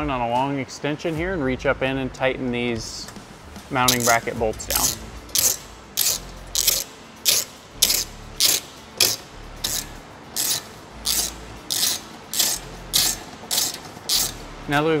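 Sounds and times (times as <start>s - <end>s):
socket ratchet clicking: 3.9s - 14.4s.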